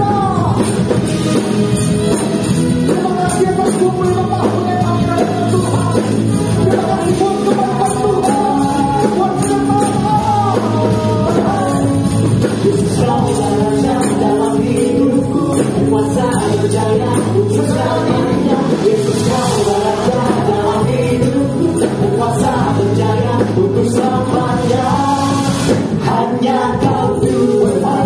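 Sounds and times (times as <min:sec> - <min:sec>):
tambourines jingling: 0:00.3 - 0:18.0
singers over a band: 0:02.7 - 0:28.0.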